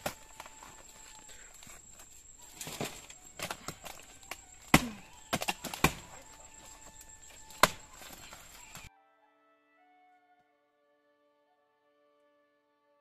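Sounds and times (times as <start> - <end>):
blade chopping palm trunk: 0.0 - 0.8, 2.6 - 8.9.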